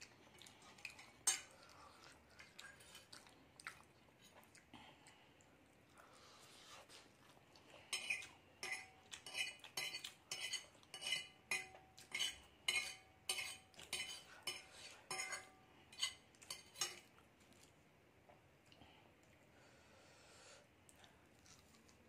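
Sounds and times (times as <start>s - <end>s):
fork clinking on glass plate: 8.0s - 17.1s.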